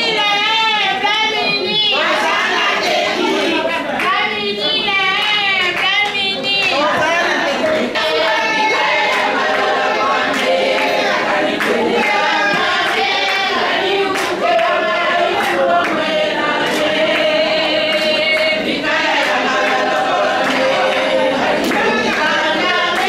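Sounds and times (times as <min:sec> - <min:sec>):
women singing together: 0:00.0 - 0:23.0
hand claps: 0:05.1 - 0:23.0.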